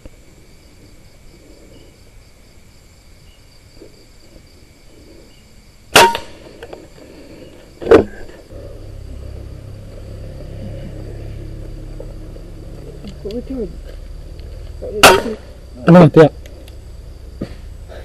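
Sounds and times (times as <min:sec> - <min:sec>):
night insects trilling: 0:00.0 - 0:18.0
air rifle shots: 0:05.9 - 0:06.6, 0:15.0 - 0:15.6
low rumble: 0:08.4 - 0:18.0.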